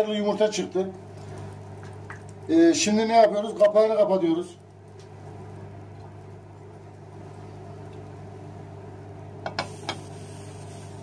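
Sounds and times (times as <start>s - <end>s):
eggs frying hiss: 0.0s - 11.0s
steady low hum: 0.0s - 11.0s.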